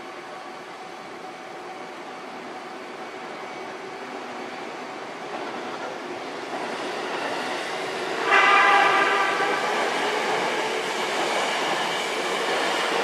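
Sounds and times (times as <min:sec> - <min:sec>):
electric train running: 0:02.9 - 0:13.0.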